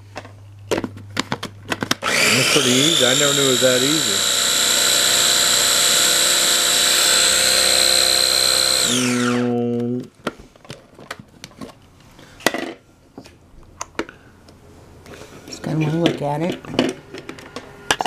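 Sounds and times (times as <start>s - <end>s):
food processor whining: 2.0s - 9.6s.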